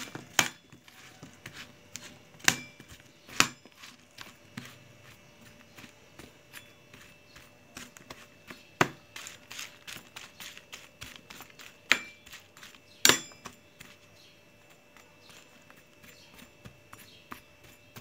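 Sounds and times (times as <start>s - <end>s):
spoon scraping eggplant on tray: 0.0s - 18.0s
spoon clinking against metal tray: 11.9s - 12.4s, 13.0s - 13.6s.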